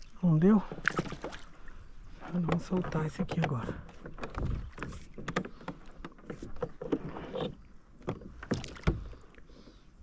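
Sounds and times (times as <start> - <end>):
clicks and knocks on plastic kayak: 2.2 - 9.2.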